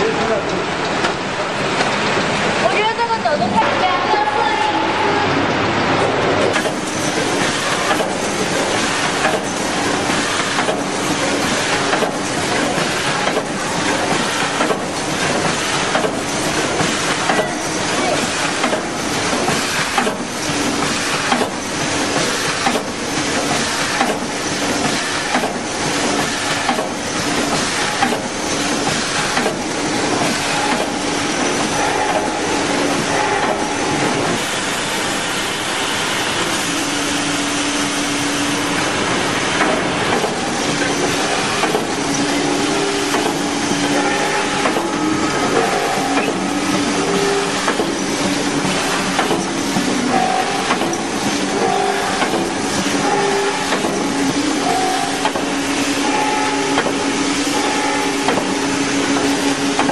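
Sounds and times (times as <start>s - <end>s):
packing machine mechanical din: 5.5s - 59.9s
regular machine clack: 39.6s - 59.9s.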